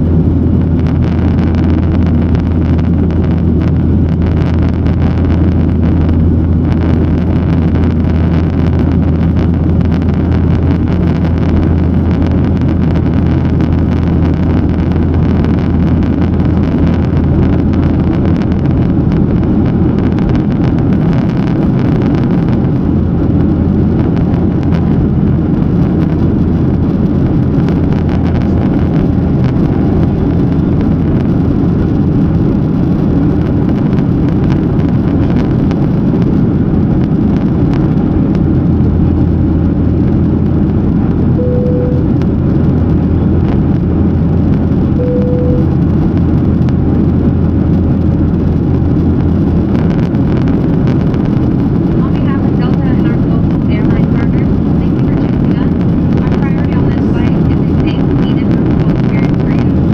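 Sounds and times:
jet engines rumbling: 0:00.0 - 0:59.9
short single-pitch tones: 0:41.4 - 0:42.2, 0:45.0 - 0:45.9.

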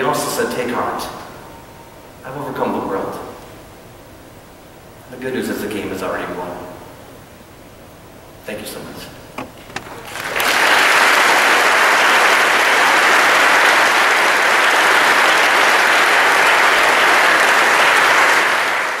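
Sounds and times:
audience applauding: 0:09.8 - 0:19.0.

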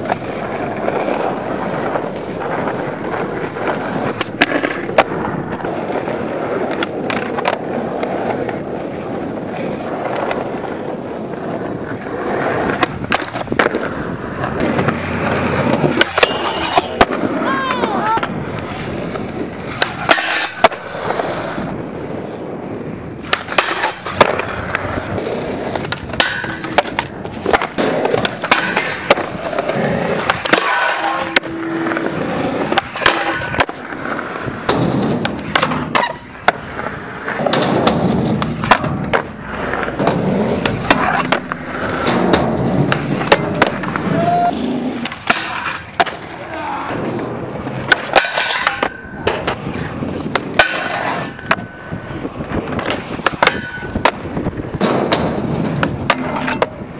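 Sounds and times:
skateboard pops and clacks: 0:00.0 - 0:21.8, 0:23.1 - 0:56.9
skateboard grinding on metal rail: 0:00.0 - 0:56.9
skateboards rolling on concrete: 0:00.0 - 0:56.9.

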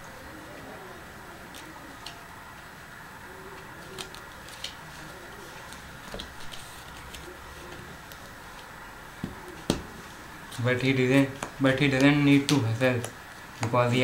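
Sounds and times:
playing cards being dealt: 0:03.7 - 0:14.0.

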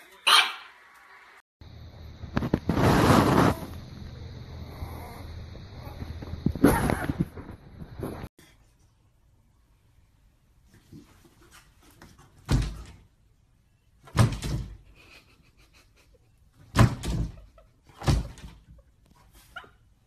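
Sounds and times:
door thumping in its frame: 0:14.1 - 0:14.8, 0:16.7 - 0:17.4.

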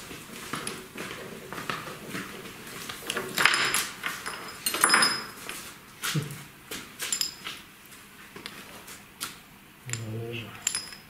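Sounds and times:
steel parts clinking and scraping: 0:03.1 - 0:05.5, 0:07.1 - 0:07.6, 0:09.9 - 0:11.0.

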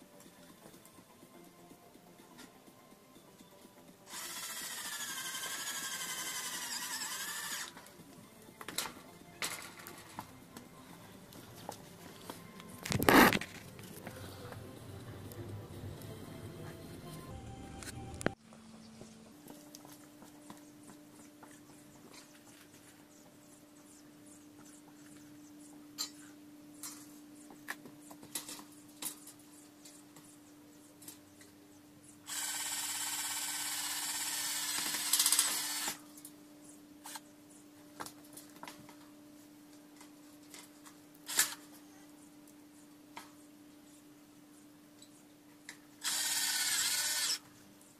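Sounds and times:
faint steady hum: 0:00.0 - 0:47.9
power drill running: 0:04.1 - 0:07.8, 0:32.3 - 0:36.0, 0:46.0 - 0:47.4.

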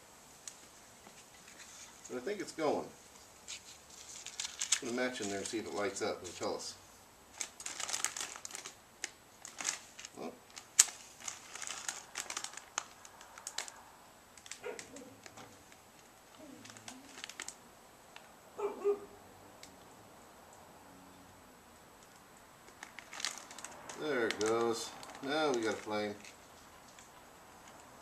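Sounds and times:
matchbox rattling: 0:03.5 - 0:05.9, 0:22.7 - 0:27.9.

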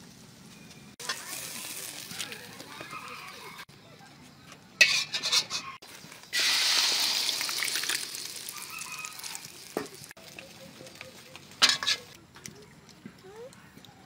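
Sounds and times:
egg sizzling in hot oil: 0:01.0 - 0:03.4, 0:06.2 - 0:10.6.

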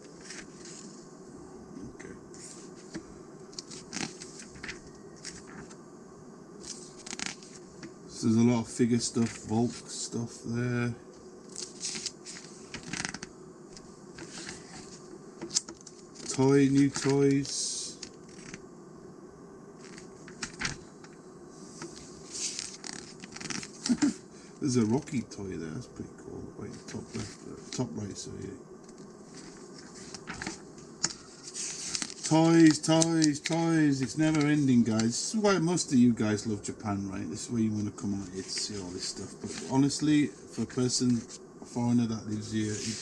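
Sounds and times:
steady low hum: 0:00.0 - 0:43.0
page turning: 0:02.4 - 0:05.8, 0:06.6 - 0:07.6, 0:11.5 - 0:13.3, 0:14.2 - 0:17.3, 0:19.8 - 0:20.8, 0:21.8 - 0:24.1, 0:26.8 - 0:27.8, 0:28.9 - 0:35.1, 0:38.2 - 0:39.9
magazine pages rustling: 0:03.6 - 0:05.7, 0:06.6 - 0:07.6, 0:11.6 - 0:13.2, 0:14.2 - 0:17.2, 0:21.9 - 0:24.1, 0:29.3 - 0:35.1, 0:38.2 - 0:39.9.

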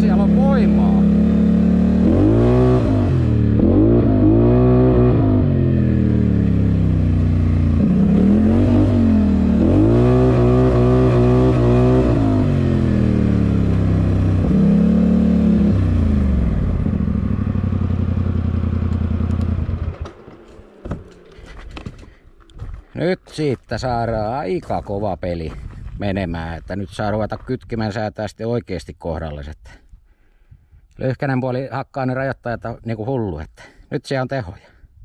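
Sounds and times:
atv engine accelerating: 0:00.0 - 0:22.8.

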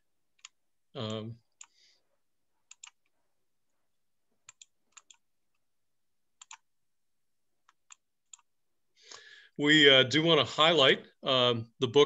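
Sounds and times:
computer mouse clicks: 0:02.7 - 0:03.1, 0:04.4 - 0:05.2, 0:06.4 - 0:06.6.

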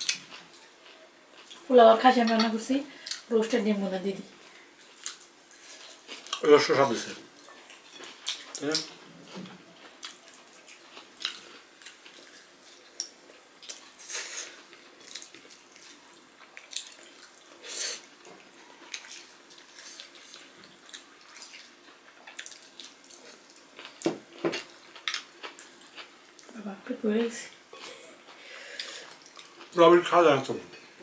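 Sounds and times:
wet chewing and lip smacks: 0:04.7 - 0:06.4, 0:09.7 - 0:24.1, 0:28.2 - 0:29.8.

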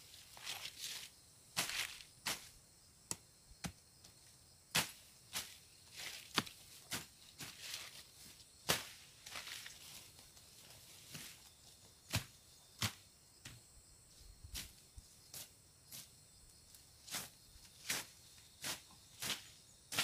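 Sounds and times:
high insect drone: 0:00.0 - 0:20.0
machete slicing through grass: 0:00.3 - 0:02.6, 0:04.7 - 0:08.0, 0:08.6 - 0:09.9, 0:17.1 - 0:20.0.

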